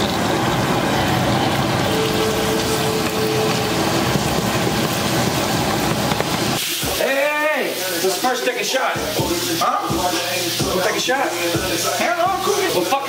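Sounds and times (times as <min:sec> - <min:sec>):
chicken sizzling in hot oil: 0:01.4 - 0:13.0.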